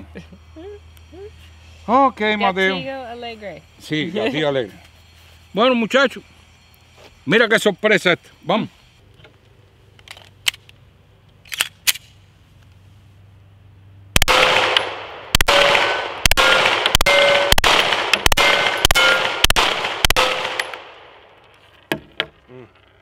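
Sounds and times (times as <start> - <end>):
steel target ringing: 14.2 - 19.6, 20.2 - 21.0
pistol shots: 14.2 - 21.2.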